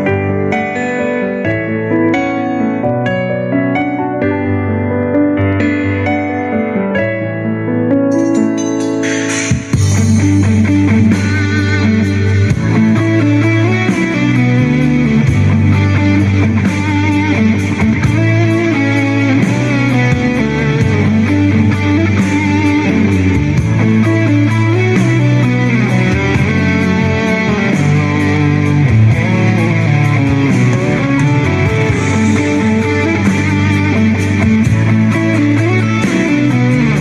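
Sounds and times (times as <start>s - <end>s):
electric guitar melody: 0.0s - 37.0s
steady bass line: 0.0s - 37.0s.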